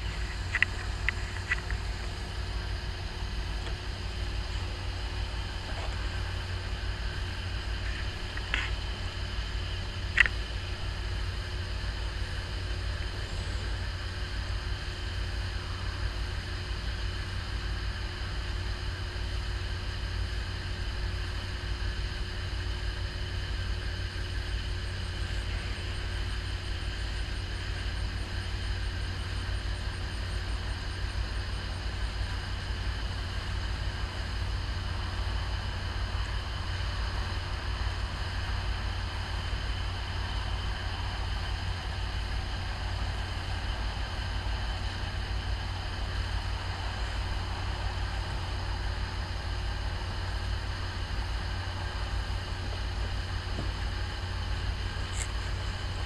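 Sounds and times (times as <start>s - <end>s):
diesel engines rumbling: 0.0s - 56.0s
sharp ticks: 0.2s - 2.2s, 10.1s - 10.4s.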